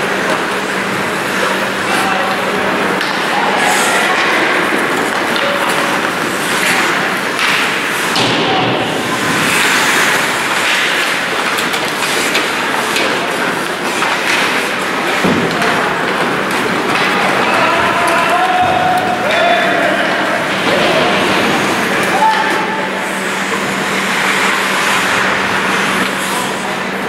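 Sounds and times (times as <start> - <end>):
skates hissing on ice: 9.0 - 14.4.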